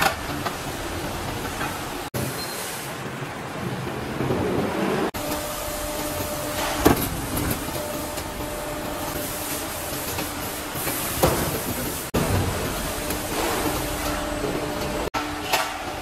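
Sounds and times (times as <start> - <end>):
roll forming machine running: 4.7 - 15.1.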